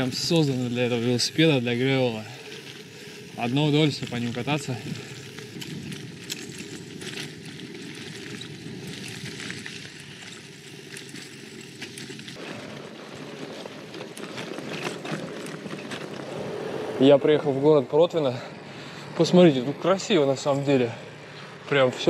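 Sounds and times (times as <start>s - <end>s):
bike tyres rolling on gravel: 0.0s - 22.0s
small crunches and clicks: 2.2s - 16.4s.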